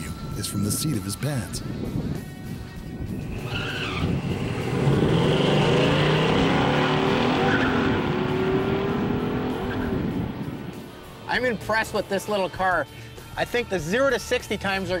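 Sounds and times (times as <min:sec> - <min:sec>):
car engine at full throttle: 0:03.0 - 0:12.2
tires squealing: 0:03.2 - 0:12.5.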